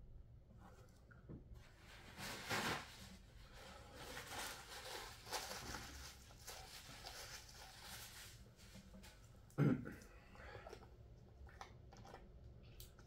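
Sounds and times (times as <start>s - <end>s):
soft handling noises: 0.5s - 9.6s
paper tissue rustling: 1.6s - 9.5s.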